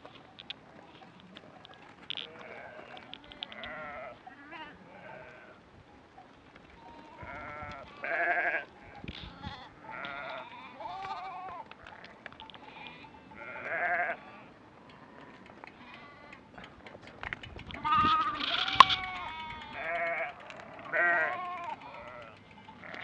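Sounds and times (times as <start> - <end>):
sheep and lambs bleating: 2.1 - 5.6, 6.8 - 14.6, 15.7 - 16.5, 17.7 - 23.0.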